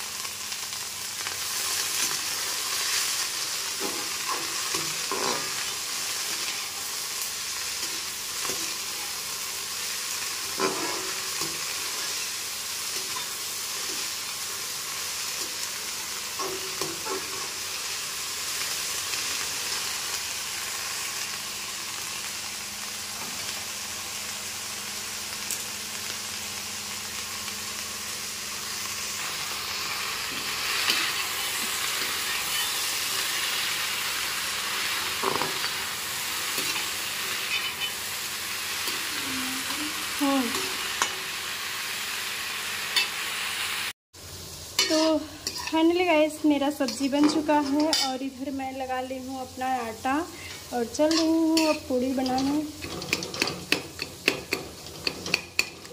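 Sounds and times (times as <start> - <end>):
vegetables sizzling in a pan: 0.0 - 55.9
spatula scraping metal pan: 44.8 - 45.8.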